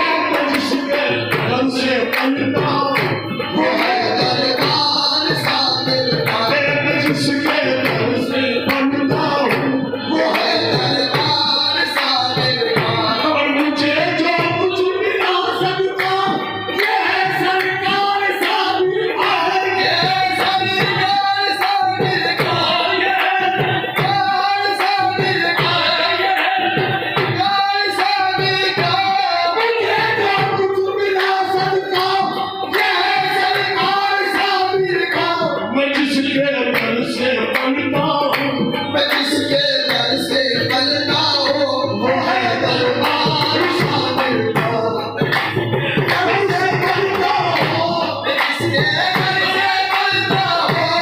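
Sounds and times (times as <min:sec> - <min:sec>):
rhythmic handclaps: 0:00.0 - 0:51.0
tabla: 0:00.0 - 0:51.0
voices singing ornamented lines: 0:00.0 - 0:51.0.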